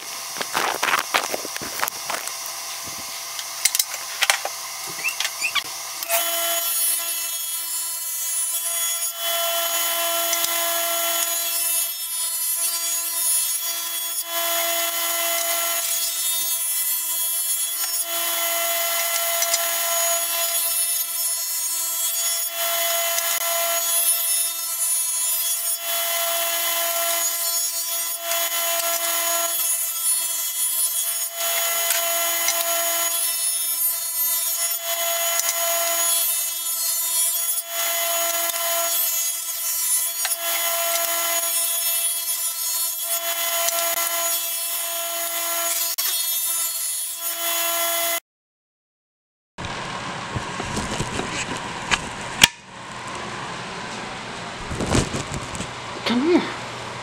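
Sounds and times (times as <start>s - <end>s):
motor whine: 0.0s - 7.1s
table saw ripping wood: 0.0s - 48.2s, 49.6s - 52.6s, 54.6s - 55.7s.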